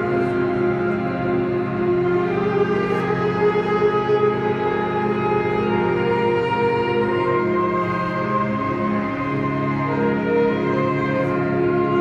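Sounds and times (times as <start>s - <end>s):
marching band brass chords: 0.0s - 12.0s.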